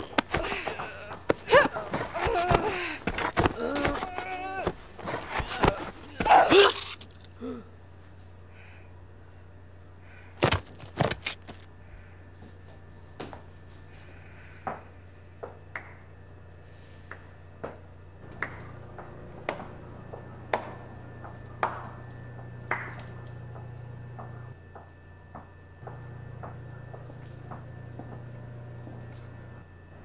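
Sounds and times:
footsteps on hard floor: 0.0s - 6.0s
low steady hum: 0.0s - 30.0s.

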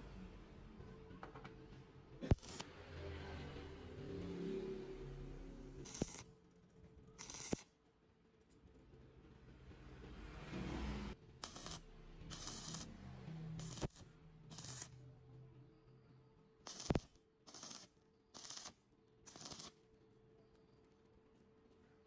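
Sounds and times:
welding arc hissing bursts: 11.4s - 12.9s, 13.6s - 14.9s, 16.6s - 19.8s.

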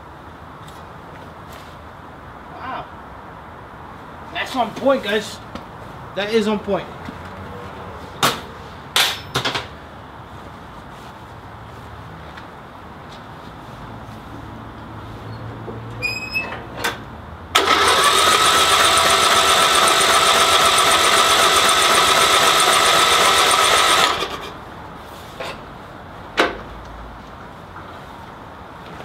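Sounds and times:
starter cranking engine: 17.6s - 24.5s.

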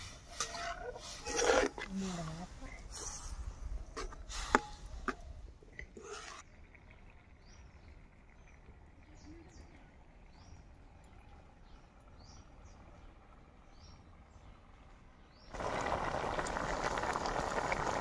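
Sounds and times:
metal spatula scraping in pot: 0.0s - 2.0s, 2.8s - 4.8s, 5.8s - 6.4s
low outdoor rumble: 0.0s - 18.0s.

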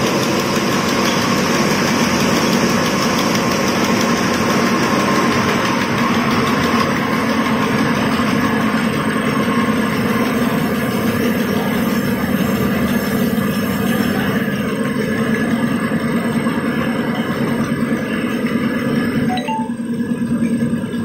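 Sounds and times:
machine drone: 0.0s - 21.0s.

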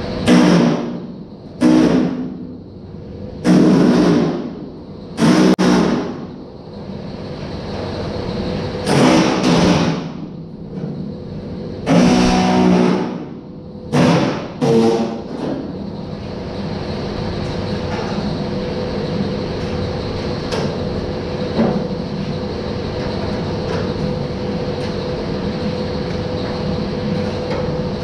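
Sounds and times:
pneumatic tool buzzing on sheet steel: 0.2s - 2.4s, 3.4s - 4.6s, 5.2s - 6.2s, 8.8s - 10.2s, 11.8s - 15.4s.

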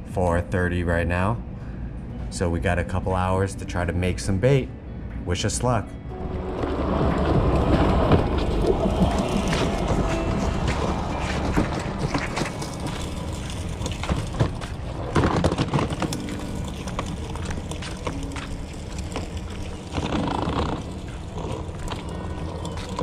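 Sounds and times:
plastic wheels rolling on concrete: 6.1s - 23.0s.

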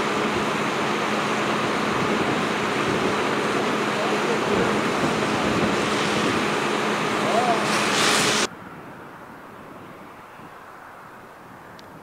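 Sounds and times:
hose spraying water on asphalt: 0.0s - 8.5s
fire truck engine hum: 0.0s - 12.0s.

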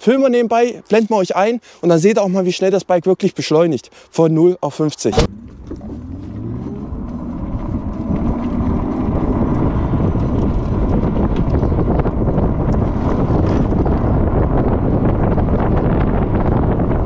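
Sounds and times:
wind noise on microphone: 5.1s - 17.0s.

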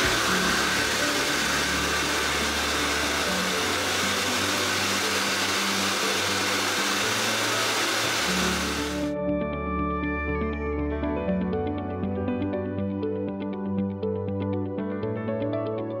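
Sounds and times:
dog grooming dryer blowing: 0.0s - 9.1s.

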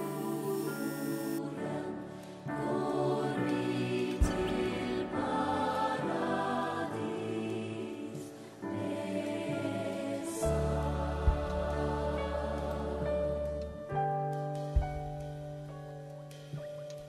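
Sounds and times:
choir-like singing in held chords: 0.0s - 14.1s.

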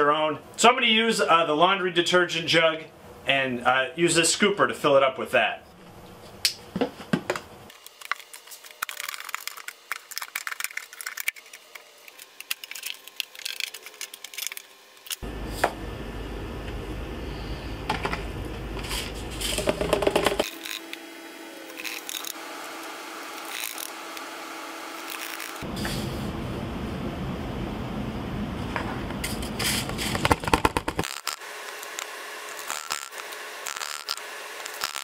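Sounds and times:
scoop digging into plastic beads: 21.7s - 22.4s, 25.0s - 25.6s.

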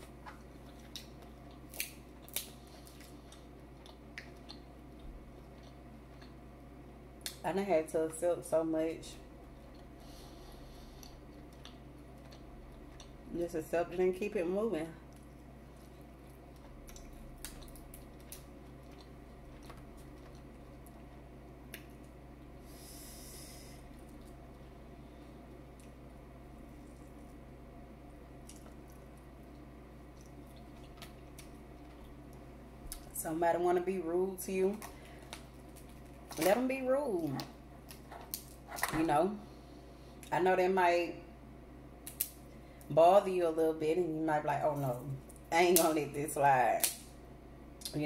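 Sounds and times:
shells cracking while eating: 0.3s - 6.4s, 15.9s - 22.5s, 28.3s - 33.1s, 34.8s - 36.5s, 37.4s - 38.9s, 42.0s - 42.5s, 46.8s - 47.2s.

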